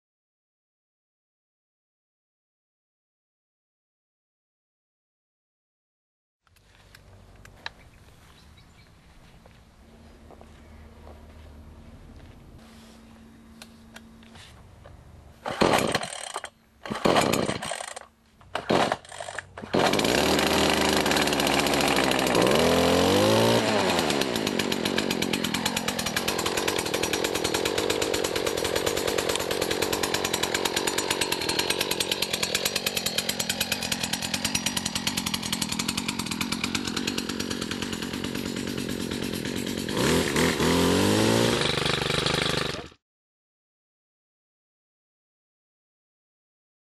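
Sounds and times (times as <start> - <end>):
starter rope pulls: 15.4 - 43.0
two-stroke engine revving and idling: 15.4 - 43.0.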